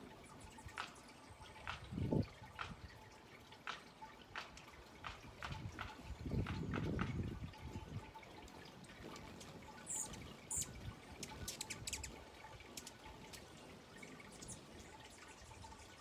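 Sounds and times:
hummingbird chirping: 0.0 - 1.8, 7.5 - 16.0.

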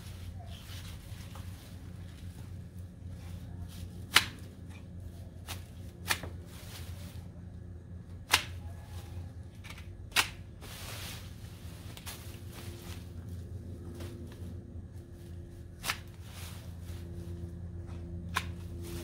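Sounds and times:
garden shears snipping stems: 3.6 - 7.2, 8.2 - 13.2, 15.7 - 17.0, 17.9 - 19.0.

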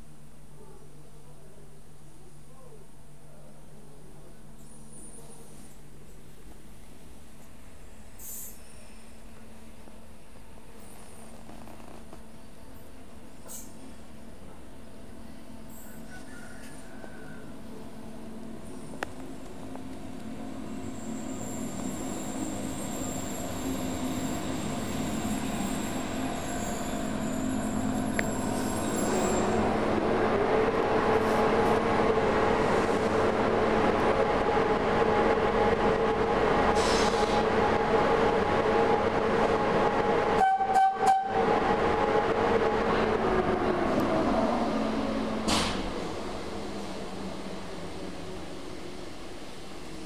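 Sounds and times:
electric locomotive pulling train: 12.2 - 50.0.

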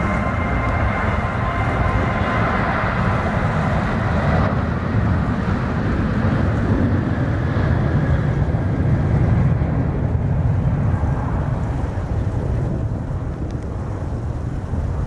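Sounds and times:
faint high whine: 0.0 - 4.9
jet engines deep rumble: 0.0 - 15.0
wind buffeting microphone: 0.0 - 15.0.

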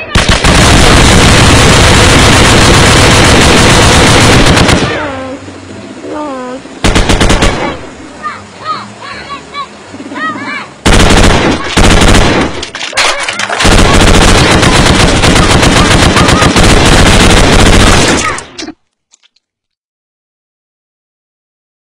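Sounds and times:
machine-gun fire: 0.0 - 5.1, 6.8 - 7.8, 10.8 - 18.5.

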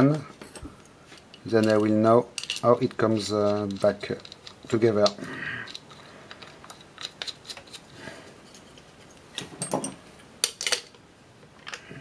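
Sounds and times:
small metal parts clicking: 1.3 - 7.8.

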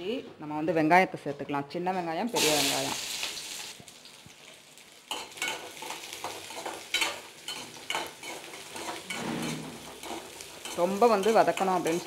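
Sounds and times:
faint sizzle of frying: 2.2 - 12.0
metal spoon scraping in pan: 5.1 - 12.0.

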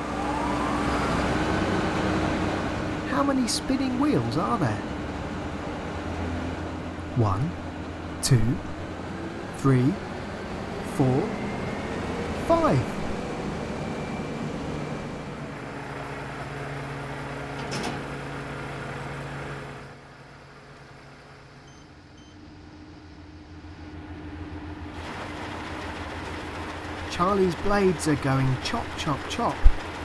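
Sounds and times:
combine harvester mechanical hum: 0.0 - 30.0
short beeps: 21.6 - 22.4.

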